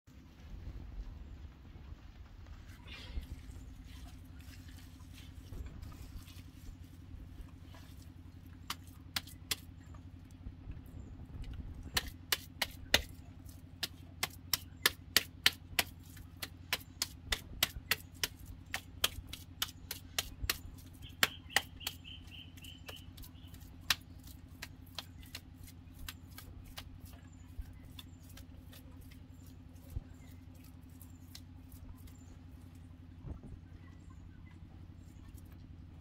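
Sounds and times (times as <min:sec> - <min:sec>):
steady low hum: 0:00.1 - 0:36.0
hands slapping wet mud: 0:08.6 - 0:09.8, 0:11.8 - 0:27.2, 0:27.8 - 0:29.2, 0:30.2 - 0:32.2
high chirping: 0:21.0 - 0:23.6.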